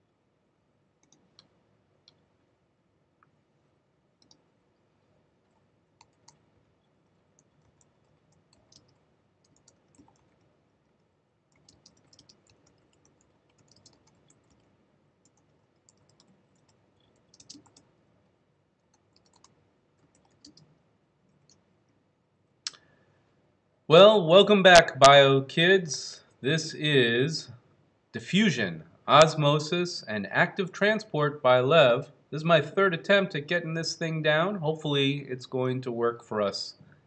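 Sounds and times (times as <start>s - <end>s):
typing on computer keyboard: 5.5s - 6.4s, 7.4s - 10.5s, 11.5s - 17.9s, 18.8s - 20.7s.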